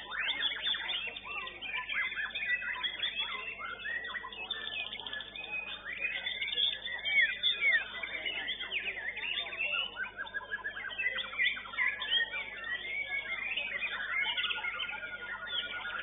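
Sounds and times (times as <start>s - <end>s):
bird singing rapid whistles: 0.0s - 16.0s.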